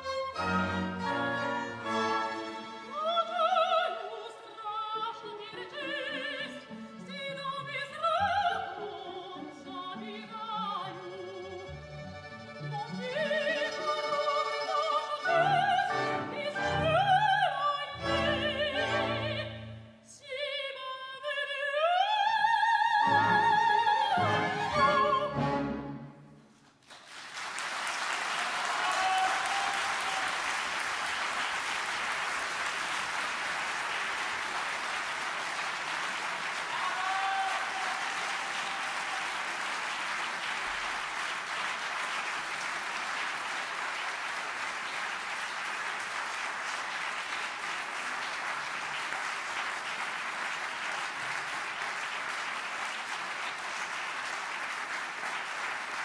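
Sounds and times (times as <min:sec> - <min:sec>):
audience applauding: 0:26.6 - 0:56.0.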